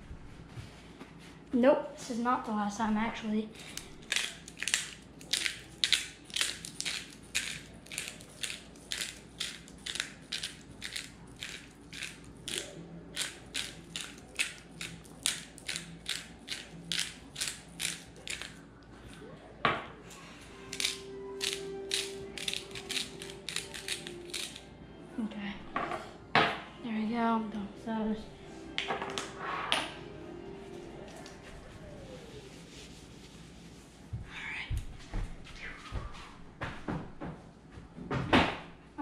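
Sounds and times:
spice grinder crunching: 0:03.6 - 0:18.6, 0:20.7 - 0:24.6.

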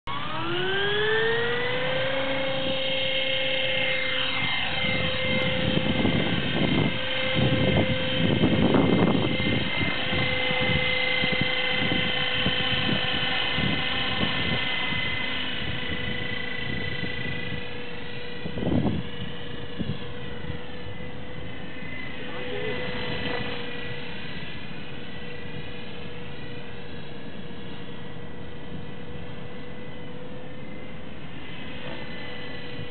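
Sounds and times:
rc helicopter motor whining: 0:00.1 - 0:32.9
gusty rushing noise: 0:04.2 - 0:16.3.

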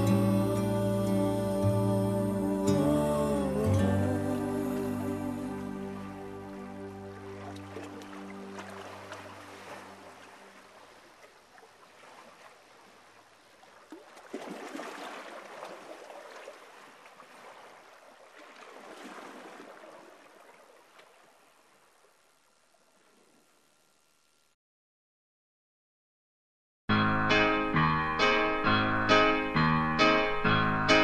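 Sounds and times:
soundtrack music: 0:00.0 - 0:09.1, 0:26.9 - 0:31.0.

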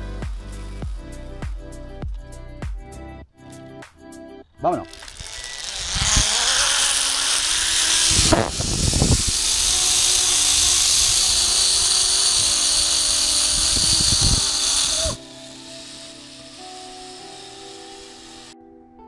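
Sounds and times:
zipline pulley whirring on cable: 0:04.9 - 0:18.6
wind rushing over microphone: 0:05.1 - 0:15.2.

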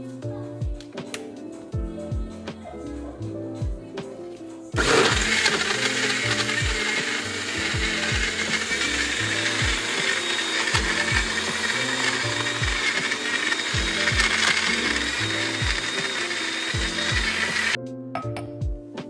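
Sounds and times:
background music with steady beat: 0:00.0 - 0:19.0
blender running: 0:04.8 - 0:17.8.

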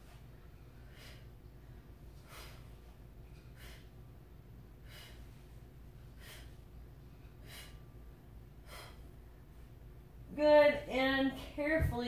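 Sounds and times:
low steady hum: 0:00.0 - 0:12.0
woman's hissing breaths: 0:00.8 - 0:01.4, 0:02.2 - 0:02.8, 0:03.5 - 0:04.0, 0:04.8 - 0:05.4, 0:06.1 - 0:06.6, 0:07.3 - 0:08.0, 0:08.6 - 0:09.2.

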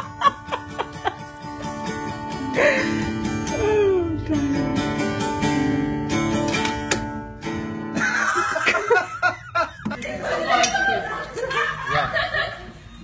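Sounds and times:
guitar strumming chords: 0:00.0 - 0:08.0.

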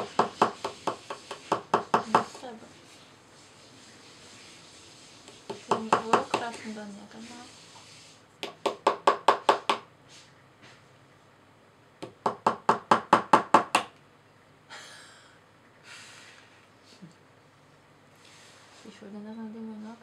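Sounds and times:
hammer tapping a chisel: 0:00.0 - 0:02.4, 0:05.3 - 0:06.6, 0:08.4 - 0:09.9, 0:12.0 - 0:14.0.

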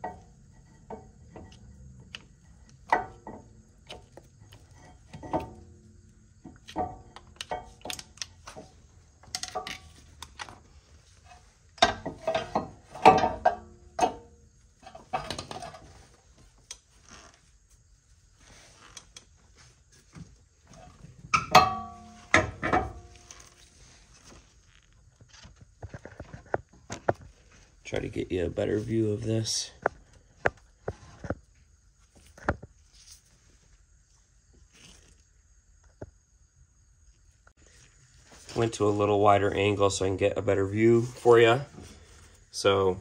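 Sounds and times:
metal tools clinking: 0:20.8 - 0:23.6
loud metal clanks: 0:21.4 - 0:23.1.

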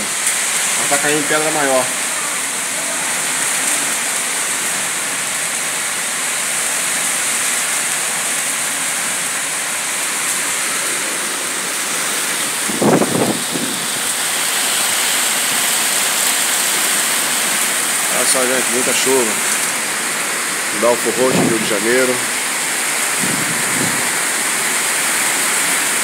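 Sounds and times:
heavy rain and hail: 0:00.0 - 0:26.0.

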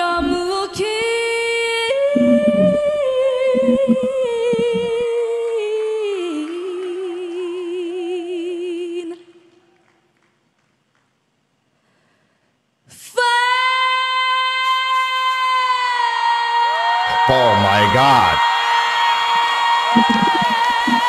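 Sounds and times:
woman singing wordless notes: 0:00.0 - 0:05.4, 0:20.0 - 0:21.0.

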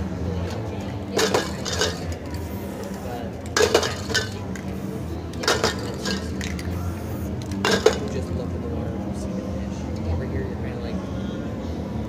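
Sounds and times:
spray-paint cans clinking: 0:00.4 - 0:08.3.

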